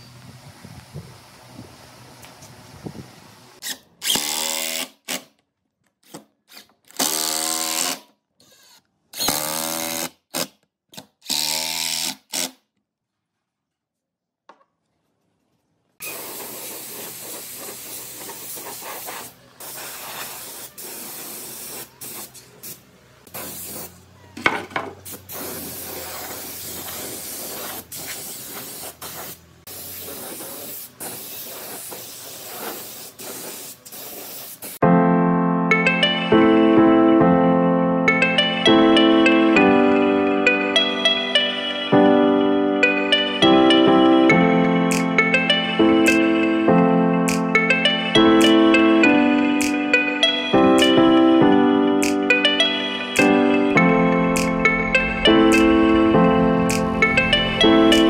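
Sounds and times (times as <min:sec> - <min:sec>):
cordless drill driving screws: 0:03.6 - 0:05.3, 0:06.0 - 0:10.1
spray gun hissing: 0:16.0 - 0:24.1, 0:25.0 - 0:34.8.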